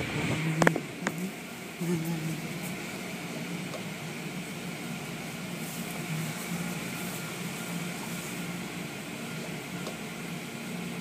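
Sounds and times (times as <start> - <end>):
car wash drone and hiss: 0.0 - 11.0
water spraying over car: 4.2 - 8.8.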